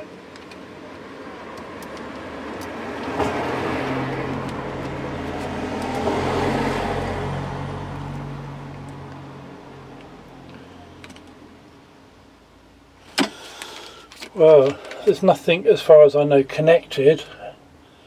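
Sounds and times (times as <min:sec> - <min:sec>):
vehicle driving past: 0:01.1 - 0:10.3.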